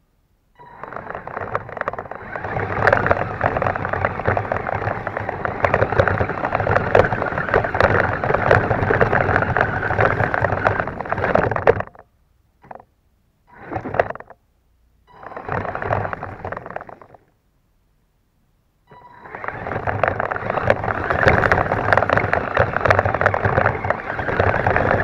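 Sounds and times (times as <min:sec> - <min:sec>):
toy truck drivetrain running: 0:00.6 - 0:12.0, 0:15.1 - 0:17.2, 0:18.9 - 0:25.0
grass rattling against toy truck: 0:00.8 - 0:12.8, 0:15.2 - 0:17.3, 0:19.1 - 0:25.0.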